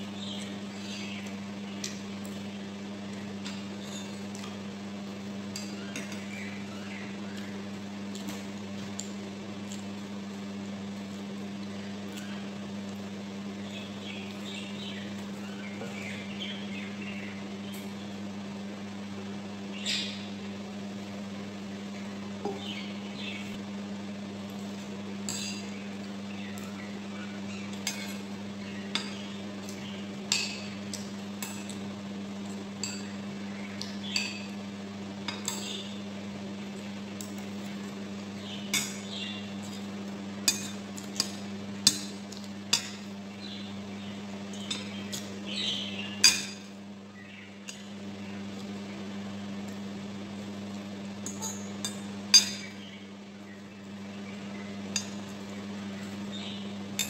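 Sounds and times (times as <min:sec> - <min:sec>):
cutlery clinking on bowls: 0:25.3 - 0:25.7.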